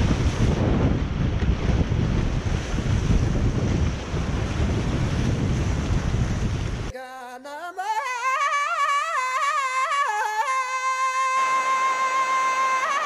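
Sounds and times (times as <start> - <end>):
wind buffeting microphone: 0.0 - 6.9.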